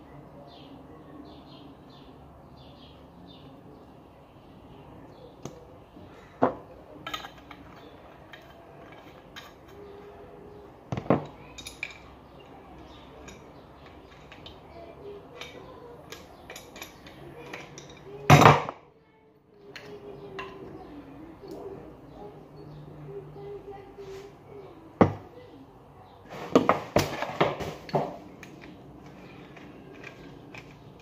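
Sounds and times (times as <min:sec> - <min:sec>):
metal parts clinking on table: 0:06.9 - 0:10.0, 0:11.0 - 0:14.7, 0:15.3 - 0:18.6, 0:26.5 - 0:31.0.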